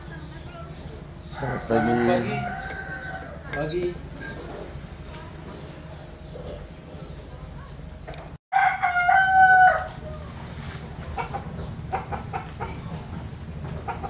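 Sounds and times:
rooster crowing: 1.3s - 3.5s, 8.5s - 10.2s.

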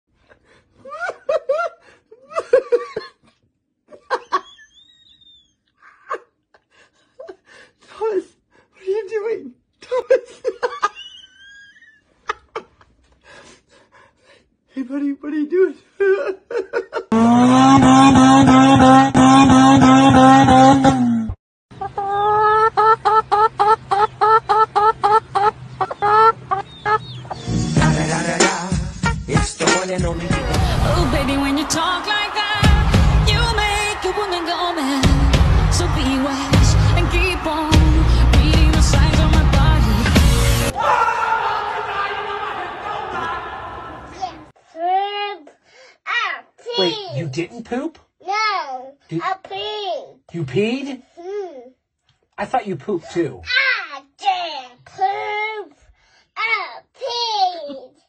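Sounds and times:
chicken clucking: 21.8s - 27.4s
music with voices: 27.4s - 40.8s.

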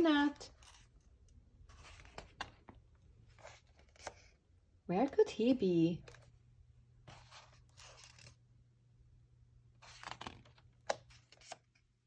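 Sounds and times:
paper pages turning: 0.4s - 4.4s, 7.1s - 8.4s, 9.8s - 11.8s.

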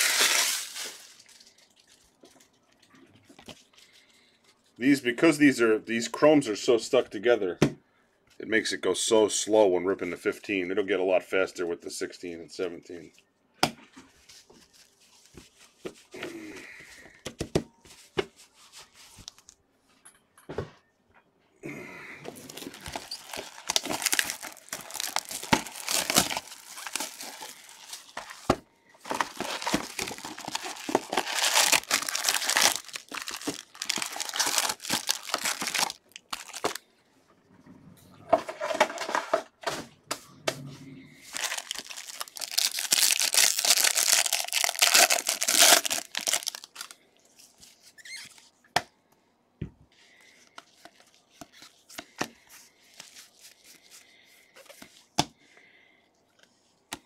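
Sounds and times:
card wrappers tearing and crinkling: 0.0s - 2.1s, 22.3s - 36.8s, 41.2s - 47.0s.

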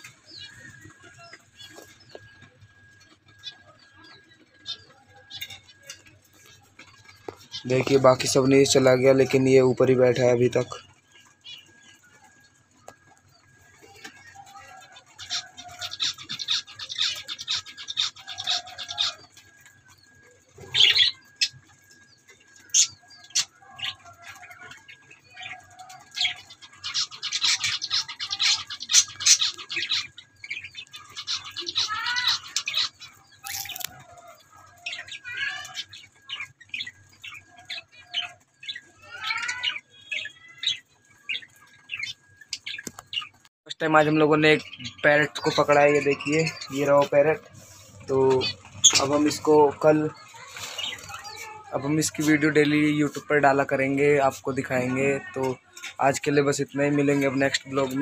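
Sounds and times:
budgerigars chirping: 0.0s - 58.0s
budgerigar warbling chatter: 13.0s - 58.0s.

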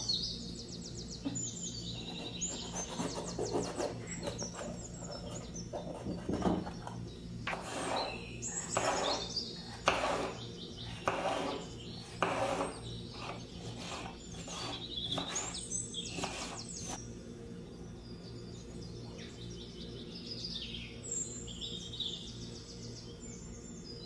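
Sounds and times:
small birds chirping: 0.0s - 24.0s
knife cutting on cutting board: 7.5s - 10.4s, 11.0s - 17.0s.

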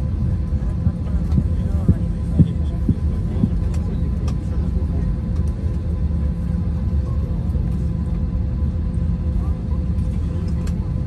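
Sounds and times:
aircraft cabin rumble taxiing: 0.0s - 11.0s.

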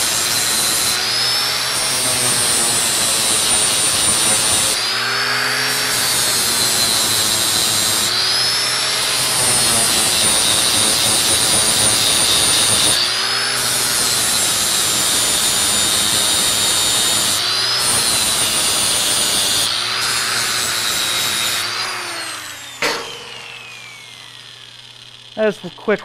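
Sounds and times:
angle grinder sanding metal: 0.0s - 26.0s
grinder spinning down: 0.0s - 26.0s
sharp metal clank: 22.8s - 23.6s.

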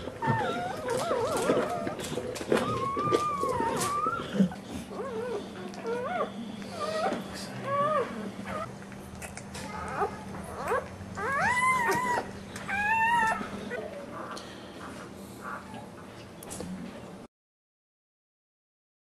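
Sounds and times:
puppies squeaking and crying: 0.0s - 8.7s, 9.3s - 14.4s.

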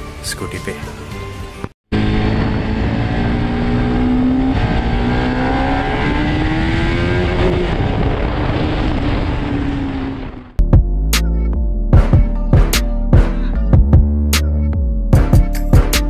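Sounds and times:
motorcycle engine accelerating: 1.9s - 10.6s.

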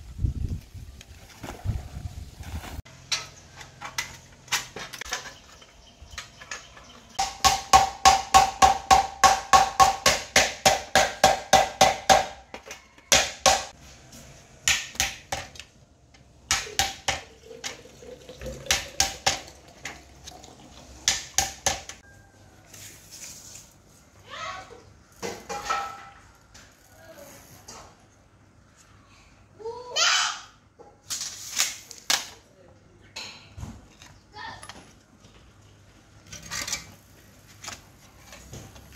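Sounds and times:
hammer striking nail through tin: 7.2s - 12.4s.

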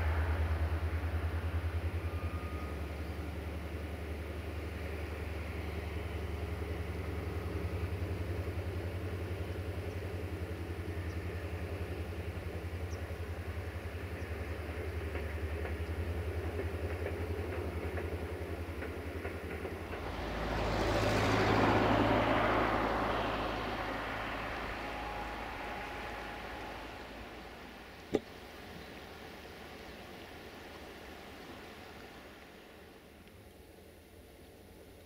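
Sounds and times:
diesel locomotive engine drone: 0.0s - 35.0s
loud rushing noise: 19.8s - 28.0s.

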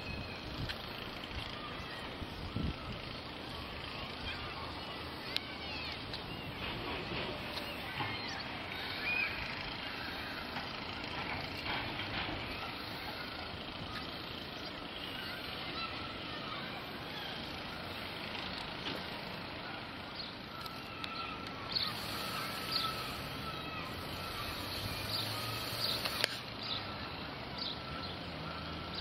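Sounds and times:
train wheels rumbling on rail: 0.4s - 20.0s
clicks: 25.8s - 26.4s.

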